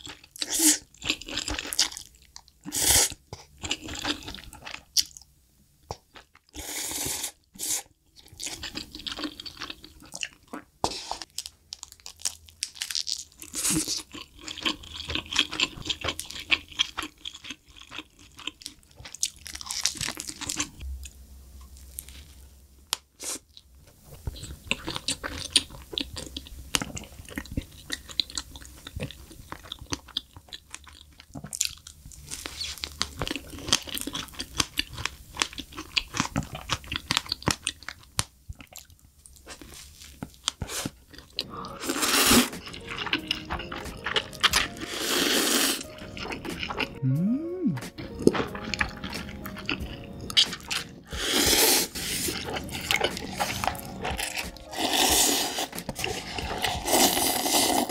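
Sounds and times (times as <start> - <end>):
chewing: 8.2 - 20.8, 23.2 - 47.0, 47.9 - 57.9
mouth clicks: 46.8 - 48.1.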